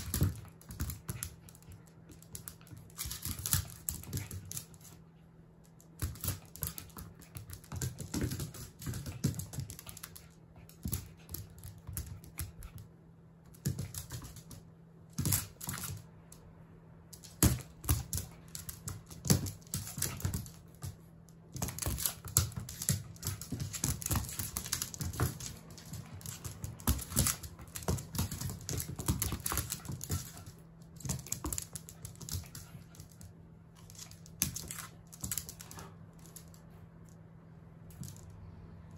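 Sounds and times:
dog claws clicking on wooden floor: 0.0s - 5.0s, 5.6s - 12.9s, 13.5s - 16.4s, 17.1s - 36.6s.

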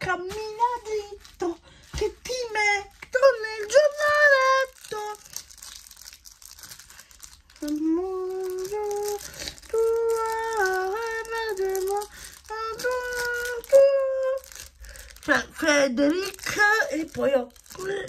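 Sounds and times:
plastic wrapper crinkling: 0.0s - 18.0s
woman humming: 7.6s - 14.5s.

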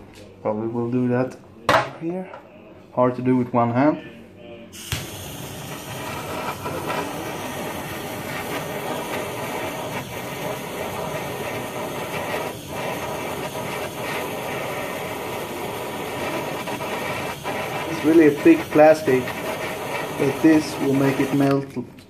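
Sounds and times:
blowtorch flame hissing: 4.7s - 21.7s.

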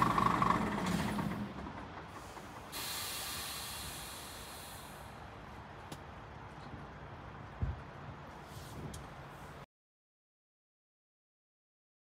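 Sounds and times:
truck diesel engine: 0.0s - 9.6s
air brake hiss: 2.2s - 5.2s.

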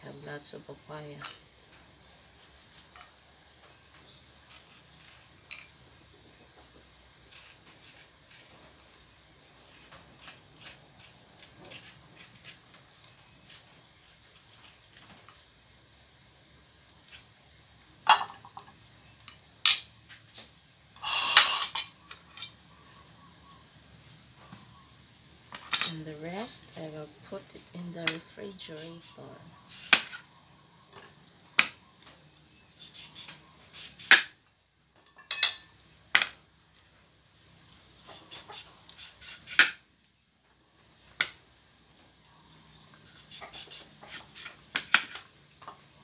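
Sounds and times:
spoon scraping papaya seeds: 9.7s - 15.0s, 37.9s - 39.6s, 43.0s - 45.2s
cutlery and plates clattering: 21.0s - 22.6s, 35.1s - 35.7s.

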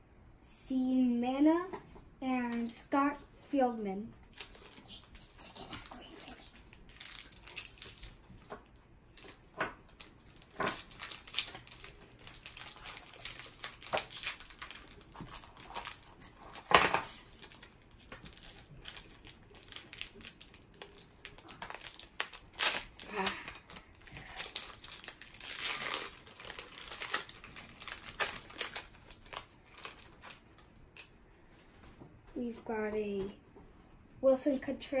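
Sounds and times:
wrapper crinkling: 4.2s - 31.1s.

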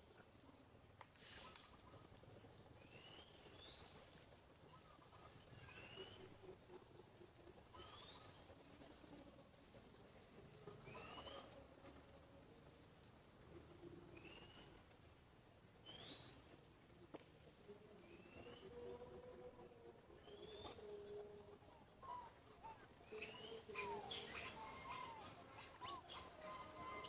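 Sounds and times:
birds chirping: 1.2s - 2.0s.

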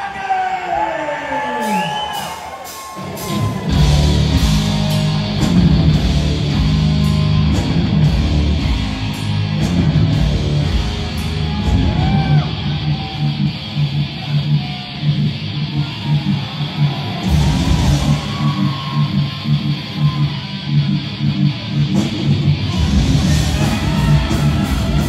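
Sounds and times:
heavy metal band playing: 1.6s - 25.0s.

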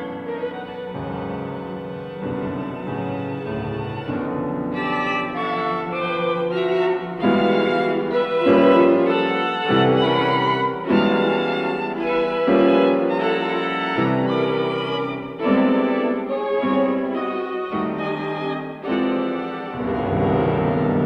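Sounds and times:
bowed strings: 0.0s - 21.0s
violin slow held notes: 4.8s - 21.0s.

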